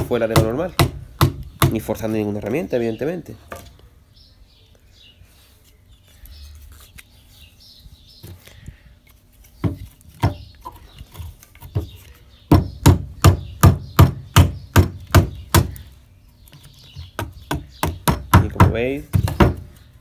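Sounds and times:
wood-on-wood knocks: 17.2 - 19.7.

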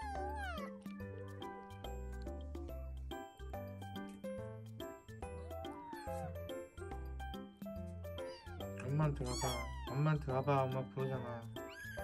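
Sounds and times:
kitten meowing: 0.0 - 1.1, 5.5 - 6.4, 8.2 - 12.0
music with ticking beat: 0.0 - 12.0.

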